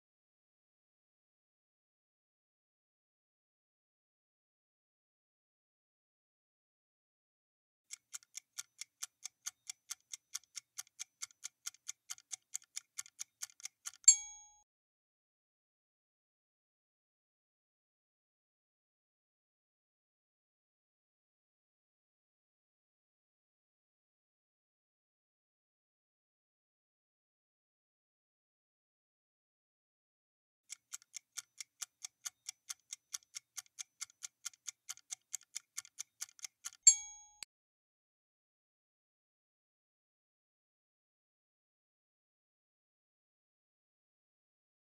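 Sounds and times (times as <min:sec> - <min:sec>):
clock ticking: 0:07.9 - 0:14.5, 0:30.7 - 0:37.5.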